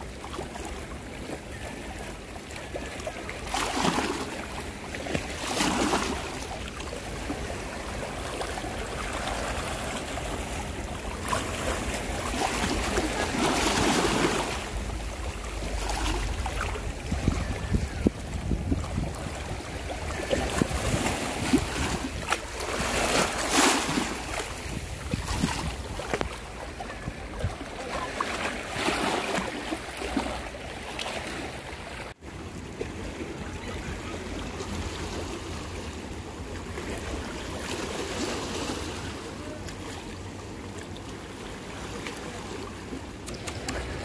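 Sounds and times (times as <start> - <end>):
sea water lapping and sloshing: 0.0 - 44.0
wind buffeting microphone: 14.6 - 23.0, 24.2 - 27.8.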